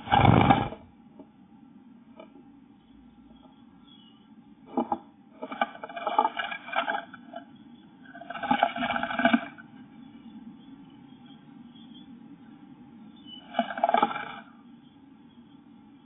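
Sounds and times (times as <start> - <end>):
bird fluttering and scrabbling: 0.0 - 0.9
low steady hum: 0.0 - 16.0.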